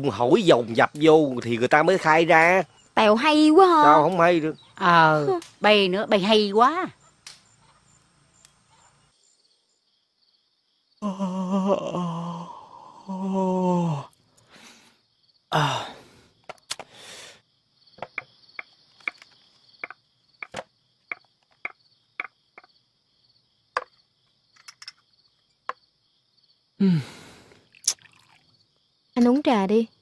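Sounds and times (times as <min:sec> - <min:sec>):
crickets chirping: 0:00.0 - 0:30.0
man yawning: 0:11.0 - 0:14.2, 0:15.5 - 0:16.1, 0:26.8 - 0:27.4.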